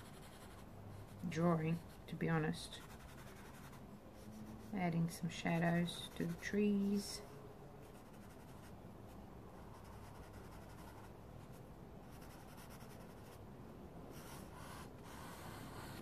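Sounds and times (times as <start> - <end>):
pencil scratching on paper: 0.0 - 6.6, 7.9 - 8.7, 9.6 - 11.1, 12.1 - 13.4, 14.1 - 16.0.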